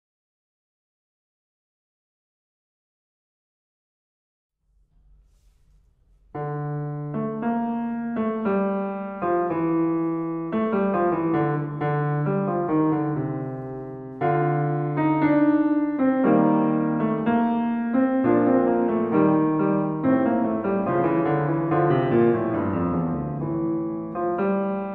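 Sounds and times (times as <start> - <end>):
solo classical piano: 5.0 - 24.9.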